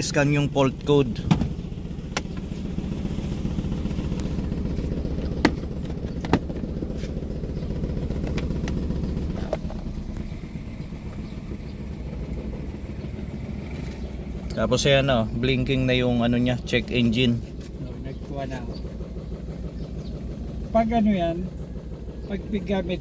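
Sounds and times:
car engine idling roughly: 0.0s - 23.0s.

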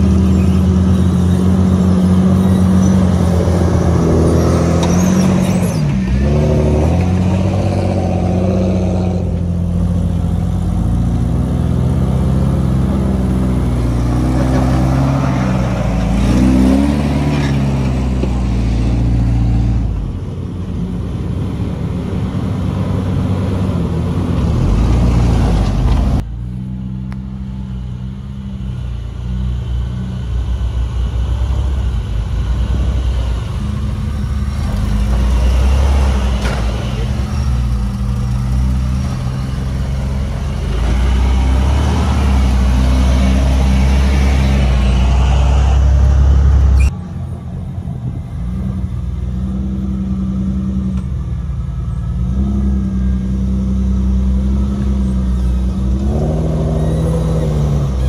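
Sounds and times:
truck engine under load: 0.0s - 58.0s.

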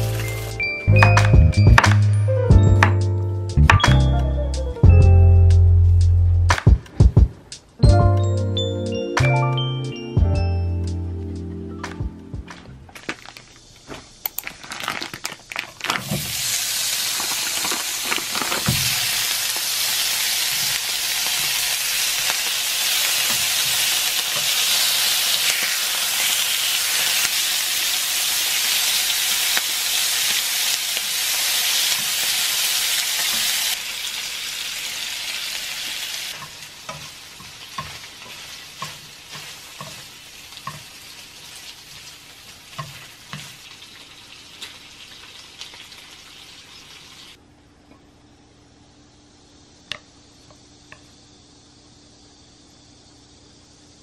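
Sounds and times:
meat sizzling in a pan: 0.0s - 0.6s, 16.0s - 47.4s.

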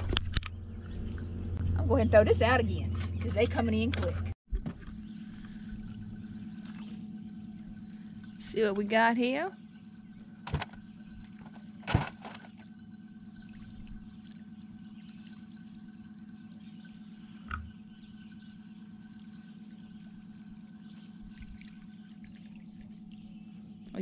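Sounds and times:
small motor humming: 4.5s - 24.0s
dull thump: 11.8s - 12.5s.

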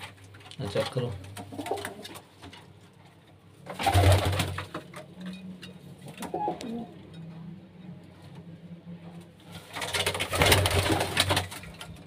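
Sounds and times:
pigeons cooing: 1.4s - 2.3s, 6.2s - 7.1s.

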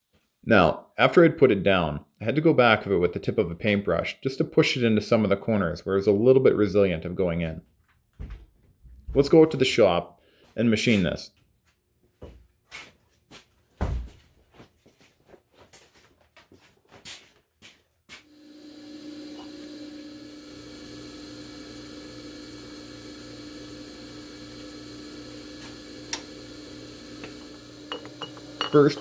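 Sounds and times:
pulsing machine hum: 18.3s - 29.0s.

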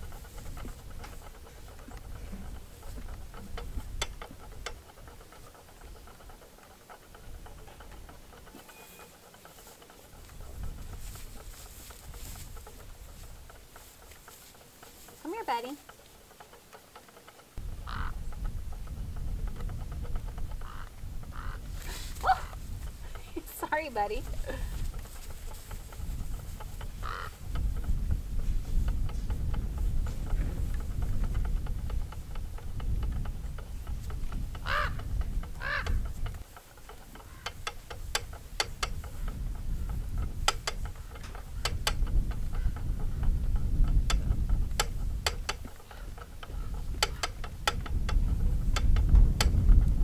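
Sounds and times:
spinning wheel clicking: 0.0s - 50.0s
alpacas humming: 20.6s - 27.8s.

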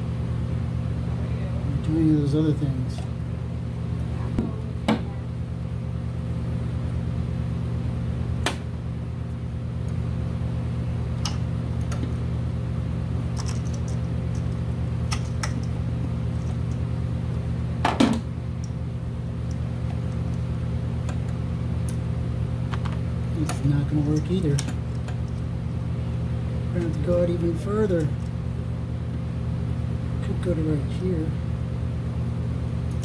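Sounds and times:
low mechanical hum: 0.0s - 33.0s.

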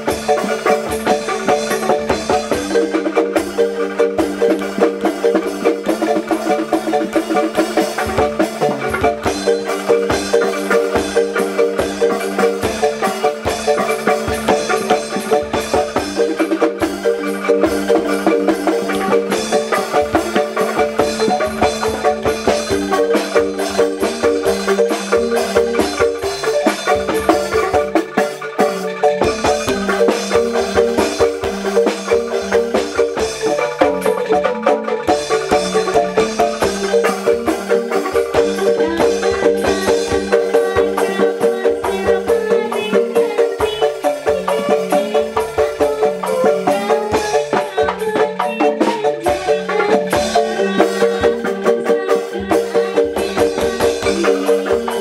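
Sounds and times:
marimba tune over beat: 0.0s - 55.0s.

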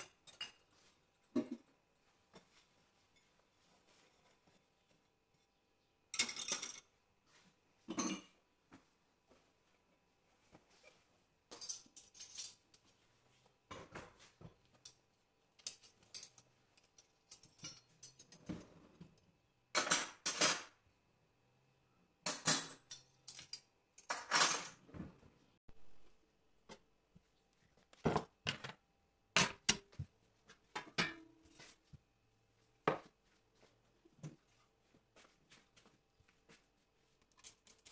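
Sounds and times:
steel spoons clinking: 15.6s - 18.5s.

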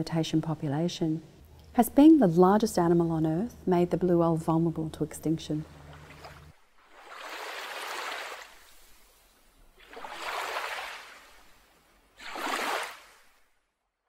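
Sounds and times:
ocean waves washing in: 5.6s - 13.5s.

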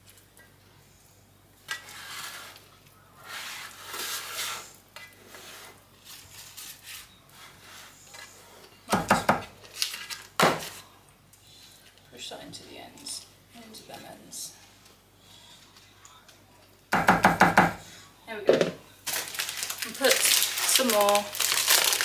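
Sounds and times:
spatula scraping metal tin: 1.7s - 2.6s, 3.2s - 8.3s
parchment paper rustling: 19.0s - 22.0s.

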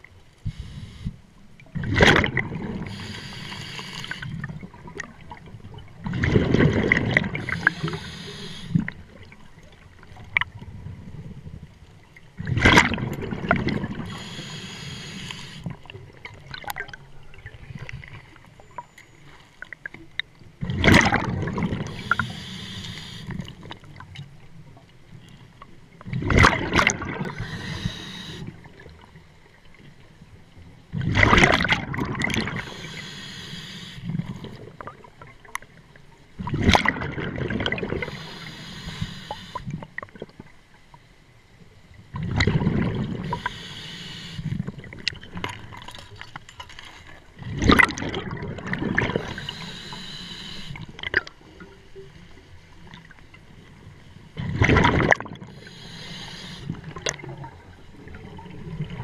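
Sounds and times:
diver breathing through regulator: 0.4s - 1.2s, 2.8s - 4.4s, 7.3s - 8.9s, 14.0s - 15.8s, 21.8s - 23.5s, 27.2s - 28.6s, 32.3s - 34.6s, 38.0s - 39.8s, 43.2s - 44.7s, 49.0s - 51.0s, 55.5s - 57.0s
bubbles gurgling underwater: 1.7s - 3.2s, 4.0s - 8.1s, 12.4s - 14.3s, 20.6s - 22.3s, 26.1s - 27.8s, 30.9s - 32.8s, 36.4s - 38.2s, 42.1s - 43.5s, 47.4s - 49.6s, 54.4s - 55.6s.

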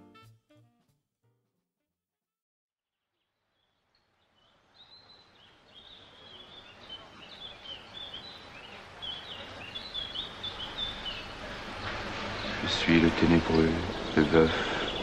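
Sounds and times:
birds chirping: 3.2s - 15.0s
background hiss: 3.4s - 15.0s.

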